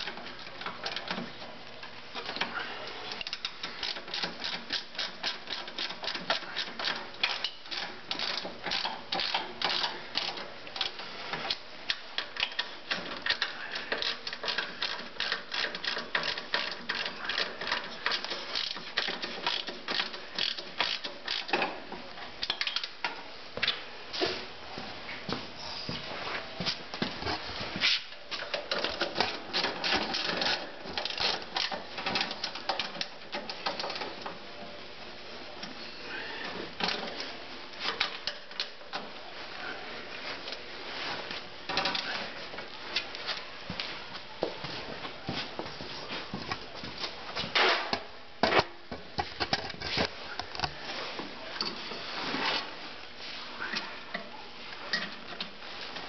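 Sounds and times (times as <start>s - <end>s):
tools clicking and knocking: 3.1s - 21.8s, 22.4s - 23.2s, 28.3s - 34.4s, 47.5s - 50.8s.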